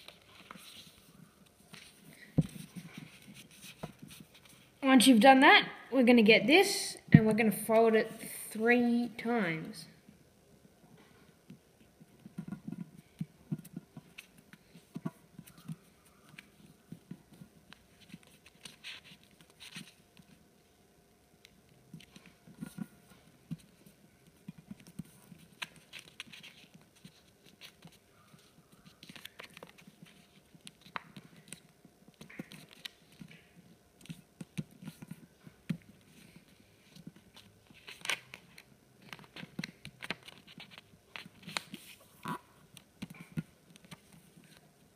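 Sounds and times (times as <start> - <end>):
paper rustling and crinkling: 0.0 - 4.7, 13.6 - 20.4, 22.0 - 42.1.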